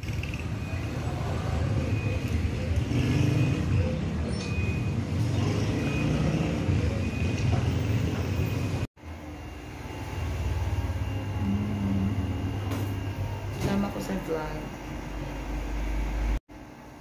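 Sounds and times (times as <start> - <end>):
road traffic rumble: 0.0 - 14.1
low indoor hum: 6.5 - 17.0.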